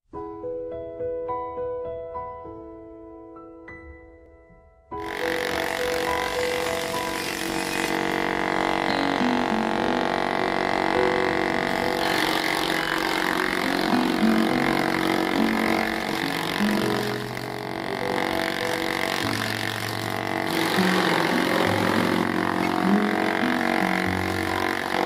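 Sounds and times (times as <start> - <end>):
background music over drone: 5.0 - 25.0
electric chaff cutter chopping: 5.0 - 25.0.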